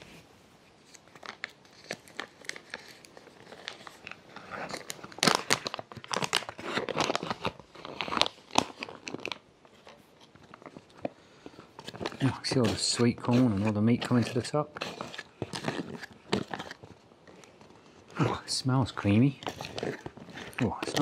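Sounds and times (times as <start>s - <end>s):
food pouch crinkling: 0.9s - 21.0s
spoon stirring in pouch: 11.8s - 18.1s, 18.9s - 21.0s.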